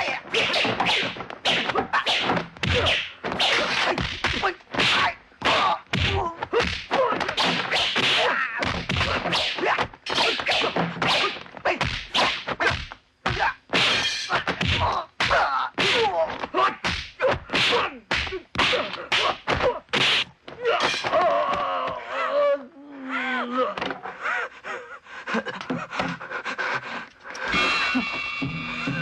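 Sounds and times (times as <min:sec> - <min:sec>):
punch and block whacks: 0:00.3 - 0:21.2.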